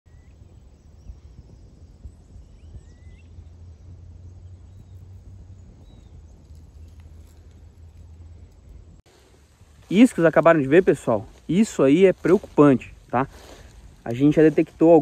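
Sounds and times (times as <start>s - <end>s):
faint bird chirps: 0.1s - 9.0s
steady low rumble: 0.1s - 15.0s.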